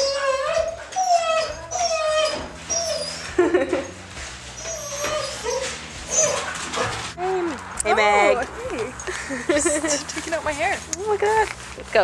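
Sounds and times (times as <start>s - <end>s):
dogs whining: 0.0s - 7.3s.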